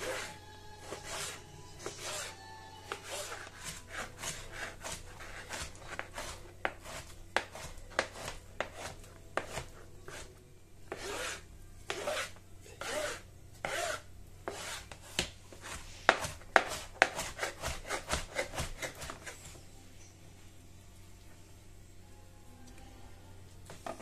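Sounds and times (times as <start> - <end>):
knife rasping through fish: 0.0 - 10.3.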